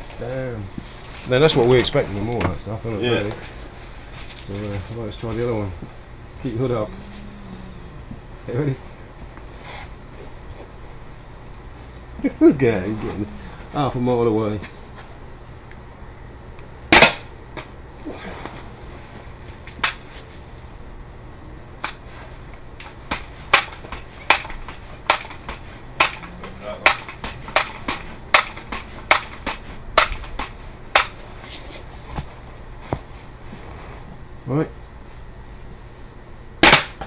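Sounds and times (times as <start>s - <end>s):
air rifle shot: 16.9s - 17.3s, 36.6s - 37.0s.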